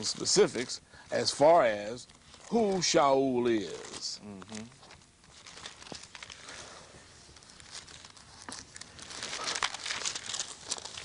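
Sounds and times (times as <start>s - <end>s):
thin pages flipping: 1.6s - 6.6s, 7.2s - 11.0s.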